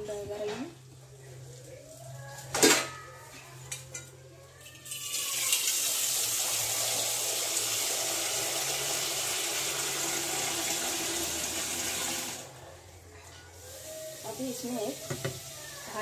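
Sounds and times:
water running from a tap: 0:04.8 - 0:12.5, 0:14.0 - 0:16.0.

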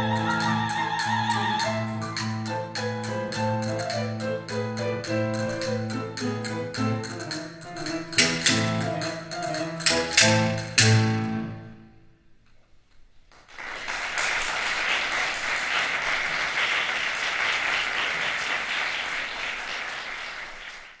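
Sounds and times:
audience applause: 0:13.4 - 0:21.0.

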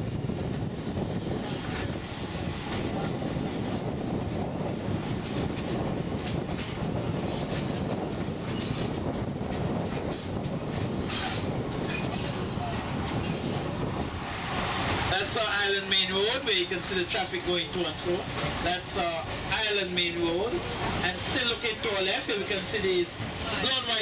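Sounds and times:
train wheels rumbling on rails: 0:00.0 - 0:24.0
high wheel squeals: 0:00.9 - 0:04.3, 0:04.9 - 0:05.5.

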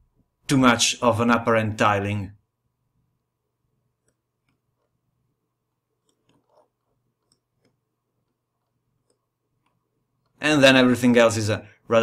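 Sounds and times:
computer mouse clicks: 0:04.0 - 0:04.9, 0:06.0 - 0:10.4.

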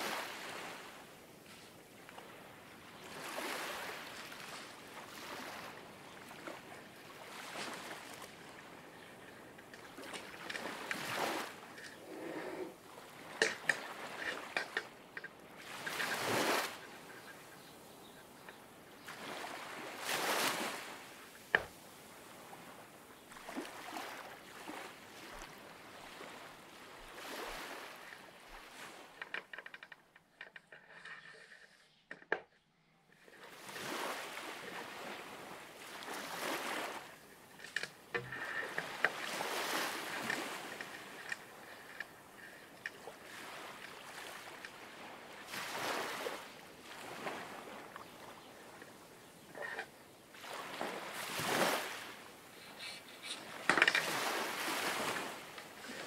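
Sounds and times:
water washing in swells: 0:00.0 - 0:09.0, 0:19.0 - 0:29.2, 0:33.5 - 0:48.0, 0:50.4 - 0:52.5.

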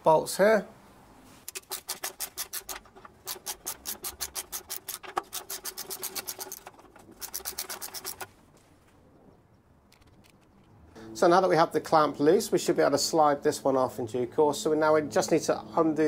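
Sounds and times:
socket ratchet clicking rapidly: 0:01.5 - 0:08.3.

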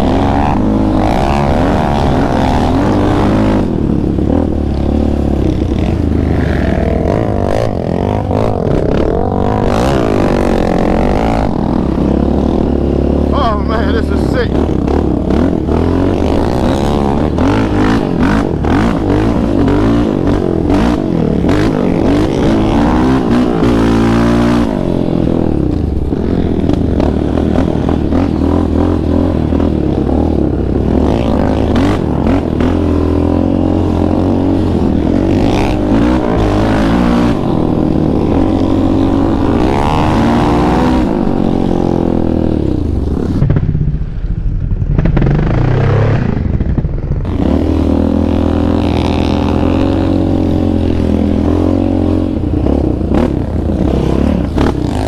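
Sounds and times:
quad bike engine revving: 0:00.0 - 0:44.2, 0:44.8 - 0:55.0.

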